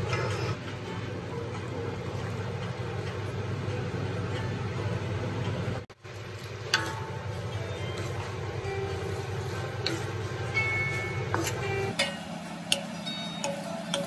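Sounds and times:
light sizzle: 0:00.9 - 0:14.0
spatula stirring in a wok: 0:06.0 - 0:14.0.

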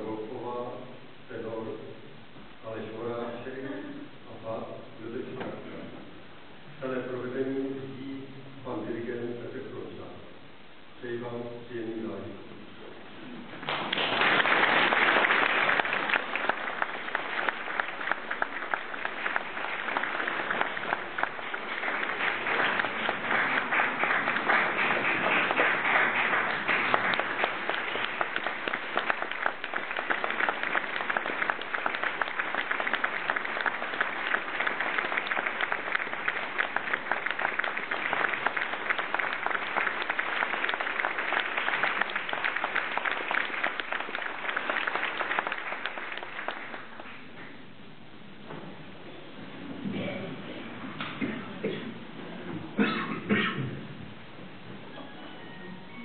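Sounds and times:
audience applauding: 0:13.6 - 0:47.5.

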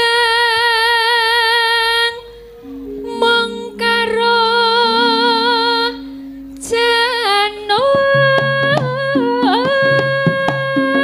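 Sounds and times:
woman singing with vibrato: 0:00.0 - 0:11.0
sustained gamelan tones: 0:01.8 - 0:11.0
drum strokes: 0:07.8 - 0:11.0.

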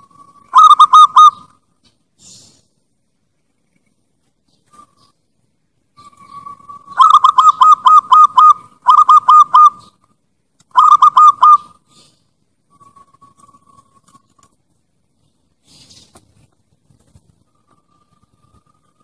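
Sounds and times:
dove cooing: 0:00.0 - 0:01.5, 0:06.0 - 0:10.0, 0:10.7 - 0:12.1.

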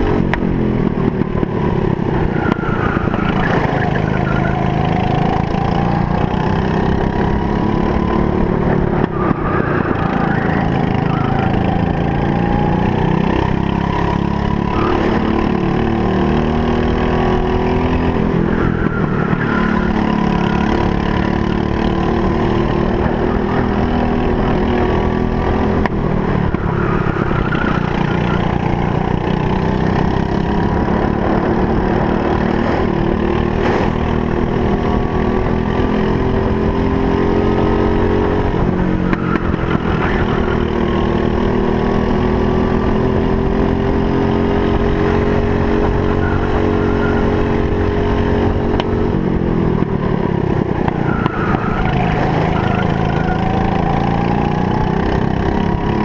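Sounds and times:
kart engine running hard: 0:00.0 - 0:56.0.

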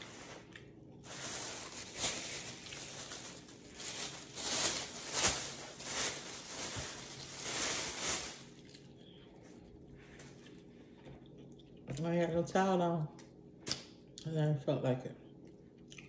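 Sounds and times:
plastic bag rustling and crinkling: 0:00.0 - 0:08.9.

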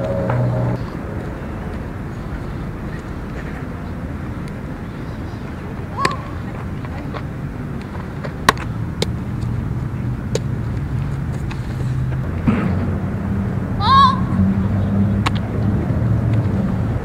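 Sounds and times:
low engine rumble: 0:00.0 - 0:17.0
ball knocking bat and glove: 0:08.4 - 0:09.2.

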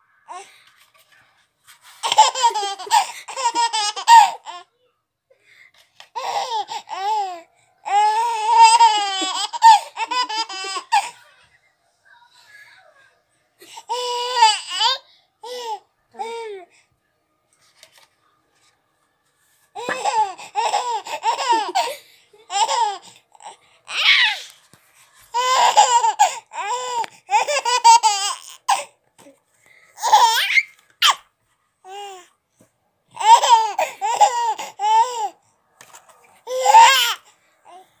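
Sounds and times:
baby laughing: 0:02.0 - 0:04.7, 0:06.1 - 0:11.2, 0:19.8 - 0:24.5, 0:25.4 - 0:28.9, 0:30.0 - 0:31.2, 0:33.2 - 0:35.4, 0:36.5 - 0:37.8.

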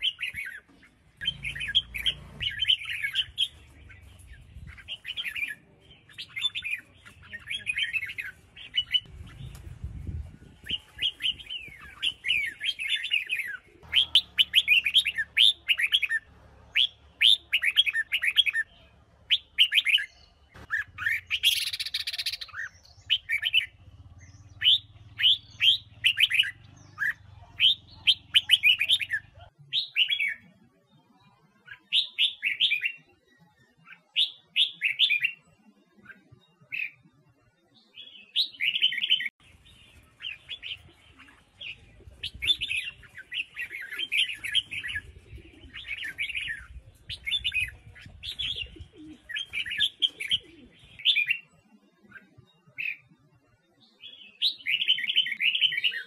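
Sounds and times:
harsh bird call: 0:10.7 - 0:23.8.

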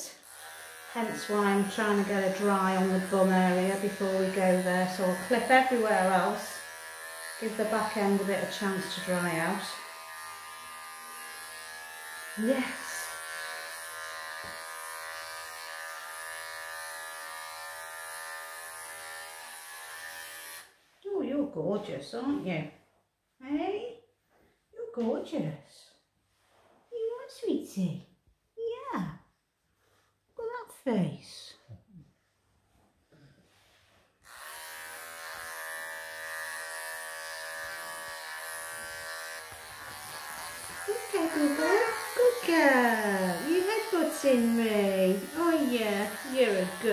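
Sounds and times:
electric clippers buzzing: 0:00.1 - 0:20.8, 0:34.2 - 0:46.9.

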